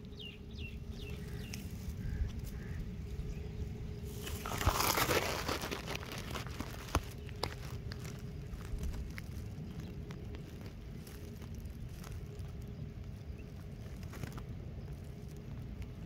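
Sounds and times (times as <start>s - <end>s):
dry grass rustling and crackling: 0.0s - 16.0s
outdoor background noise: 0.0s - 16.0s.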